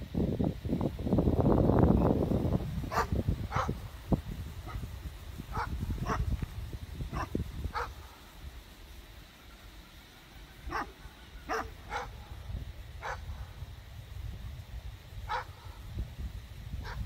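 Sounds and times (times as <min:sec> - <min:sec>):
dog barking: 0:02.9 - 0:03.8, 0:05.5 - 0:06.3, 0:07.1 - 0:08.0, 0:10.7 - 0:12.2, 0:13.0 - 0:13.3, 0:15.3 - 0:15.5.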